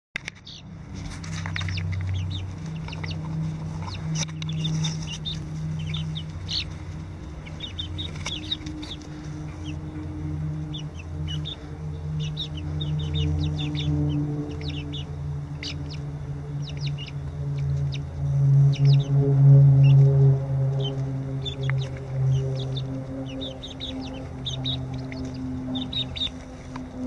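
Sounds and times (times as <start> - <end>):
chicks peeping and chirping: 0.2 - 27.0
steady low hum: 0.2 - 27.0.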